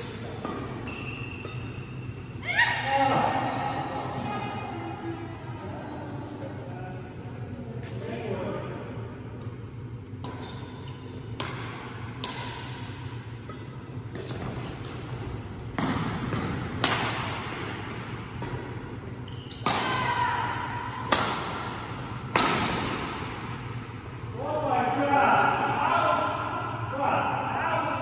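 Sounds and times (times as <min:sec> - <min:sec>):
shoe squeaks: 0:00.0 - 0:02.2, 0:14.2 - 0:16.4, 0:19.2 - 0:20.0, 0:21.3 - 0:22.0, 0:24.2 - 0:24.6
racket hitting shuttlecock: 0:10.2 - 0:10.6, 0:11.3 - 0:14.9, 0:15.7 - 0:18.9, 0:20.9 - 0:23.6.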